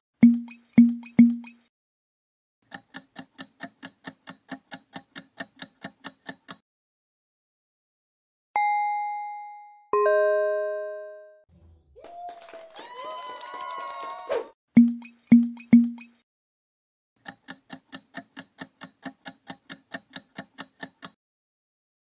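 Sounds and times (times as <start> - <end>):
countdown timer ticking: 0.2 - 1.6, 14.8 - 16.1
bell-like ding: 8.6 - 11.4.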